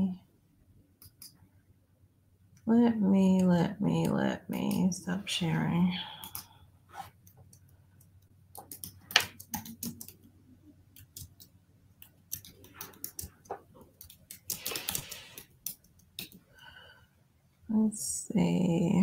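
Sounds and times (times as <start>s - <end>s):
typing on computer keyboard: 6.2s - 6.5s, 7.5s - 10.3s, 10.9s - 16.4s.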